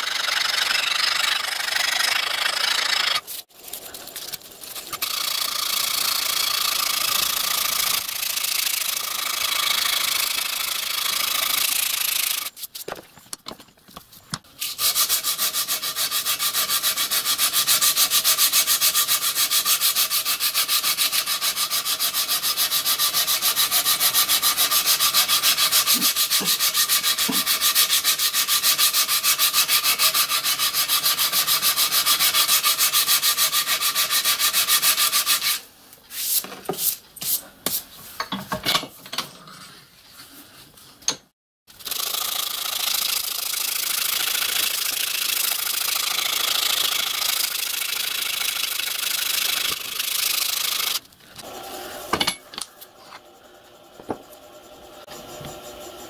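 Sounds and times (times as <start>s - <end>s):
file rasping on metal: 14.8s - 35.6s.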